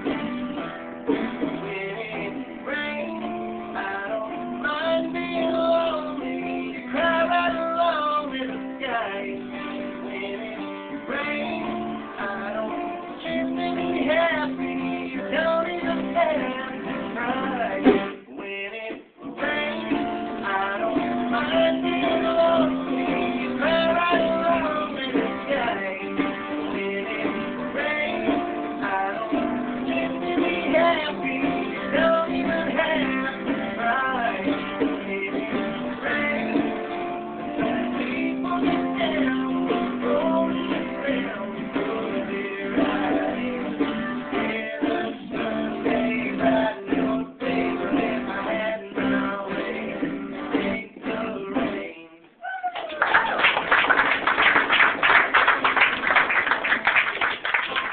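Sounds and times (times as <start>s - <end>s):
acoustic guitar strumming: 0.0s - 52.0s
person singing: 1.4s - 53.0s
people clapping: 52.5s - 57.9s.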